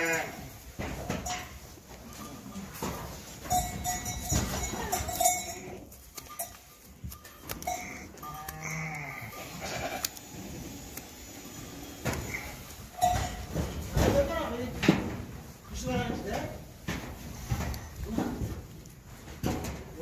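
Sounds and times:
sheep bleating: 0.0s - 0.4s, 8.2s - 10.2s
hoof shears clicking: 0.0s - 20.0s.

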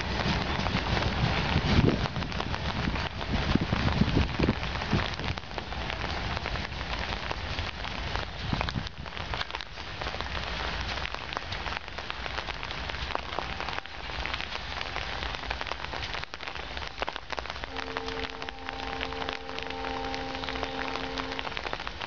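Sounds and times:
steady rain: 0.0s - 22.0s
steady multi-pitched tone: 17.8s - 21.6s.

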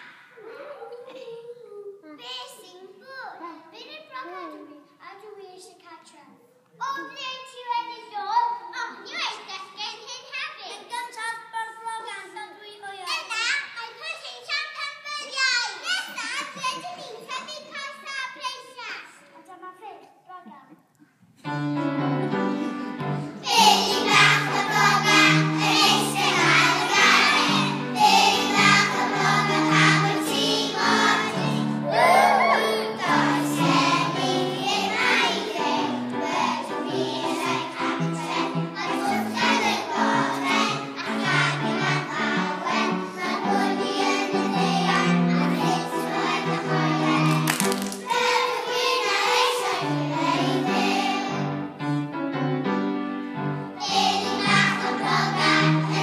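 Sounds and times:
musical accompaniment: 21.4s - 56.0s
children's choir singing: 21.5s - 51.9s, 53.6s - 56.0s.

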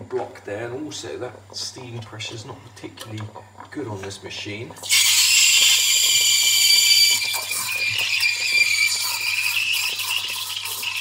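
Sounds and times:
steam wand hissing with whistle: 4.8s - 11.0s.

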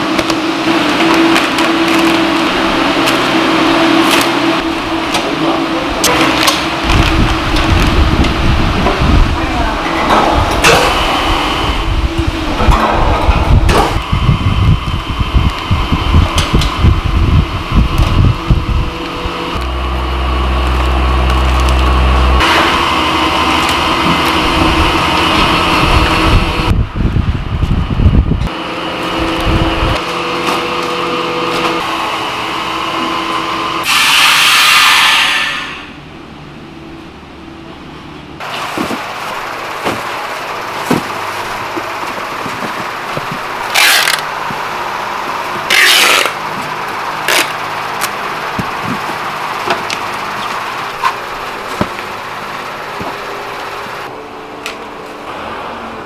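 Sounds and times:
food processing machinery running: 0.0s - 56.0s
loud hiss: 33.8s - 36.0s.

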